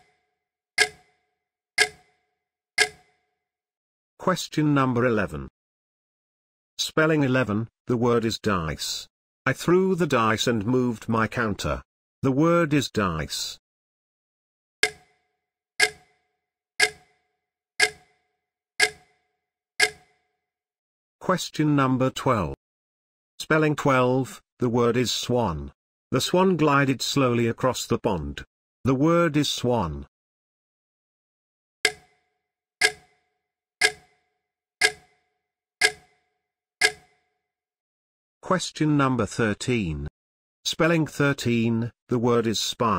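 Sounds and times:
clock ticking with ringing tone: 0.8s - 1.2s, 1.8s - 2.2s, 2.8s - 3.2s, 14.8s - 15.2s, 15.8s - 16.2s, 16.8s - 17.2s, 17.8s - 18.2s, 18.8s - 19.2s, 19.8s - 20.2s, 31.9s - 37.3s.

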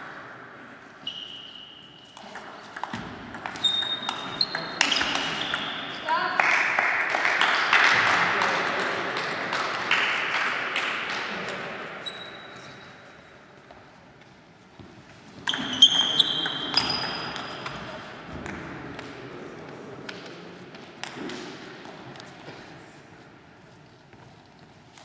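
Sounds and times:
shoes squeaking on floor: 1.0s - 2.7s, 3.4s - 6.0s, 12.0s - 13.2s, 15.3s - 17.7s.

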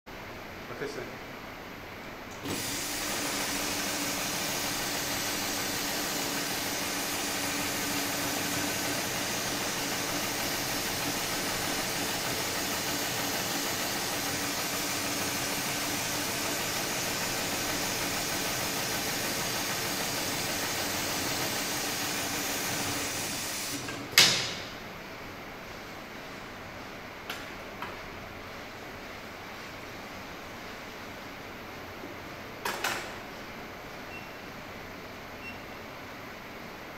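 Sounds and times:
loud burst of air: 2.4s - 24.7s.

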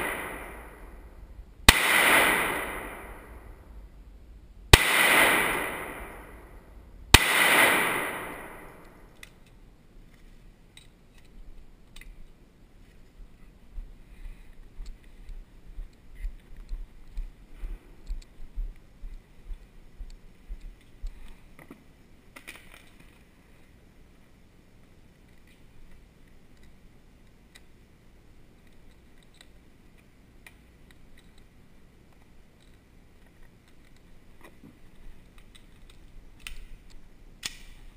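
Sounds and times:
pistol shot ringing in tunnel: 0.0s - 1.0s, 1.7s - 3.7s, 4.7s - 9.1s
low steady rumble: 0.0s - 22.2s.

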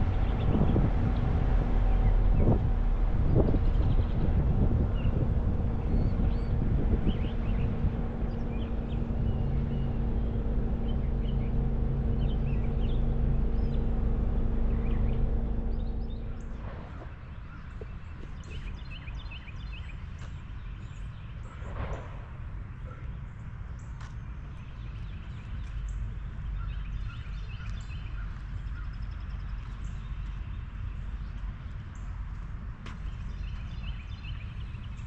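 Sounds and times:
car engine hum: 0.0s - 19.4s
songbirds chirping: 0.0s - 35.0s.

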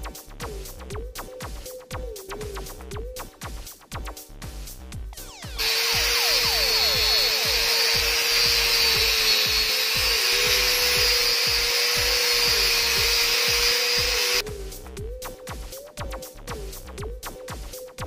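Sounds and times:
angle grinder cutting plastic: 5.6s - 14.4s.

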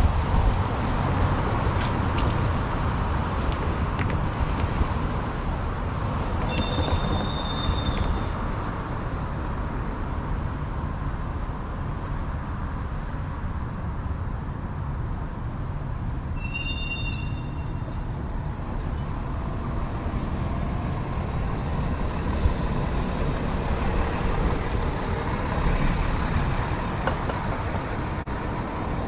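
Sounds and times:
street traffic rumble: 0.0s - 29.0s
high-pitched squeal: 6.5s - 8.5s, 16.3s - 18.2s.

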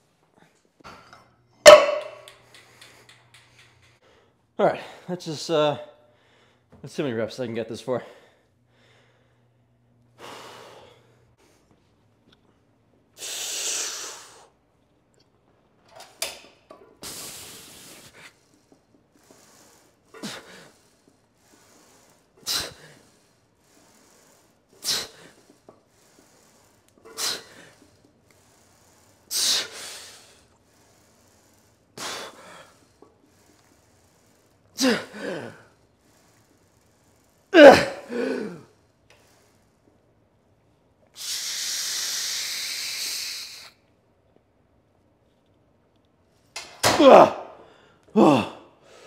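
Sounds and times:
man breathing forcefully: 17.0s - 39.8s.

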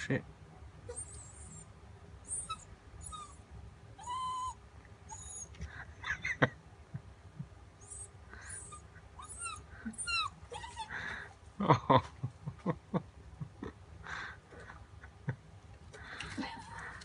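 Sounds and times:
puppy high chirps: 0.9s - 3.4s
puppy whining and whimpering: 0.9s - 3.4s, 4.0s - 5.6s, 7.8s - 11.1s.

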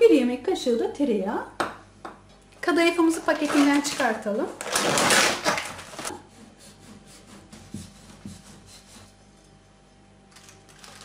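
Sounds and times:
plastic wrapping crinkling: 3.0s - 6.2s, 10.3s - 11.0s.

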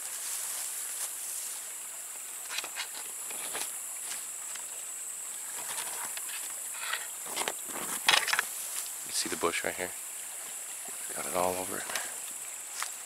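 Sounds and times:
leaves and twigs rustling: 0.0s - 1.8s, 2.4s - 4.7s, 5.4s - 13.0s
high-pitched insect chorus: 0.0s - 13.0s.

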